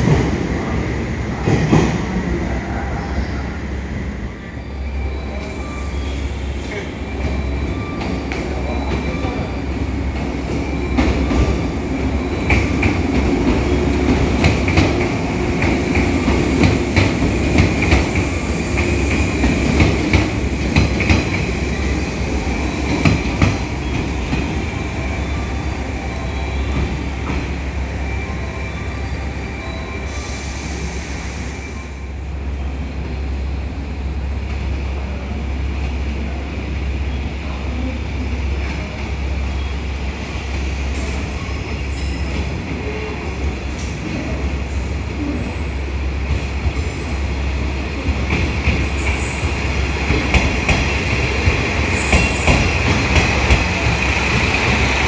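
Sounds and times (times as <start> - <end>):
train wheels clacking: 48.0 - 55.0.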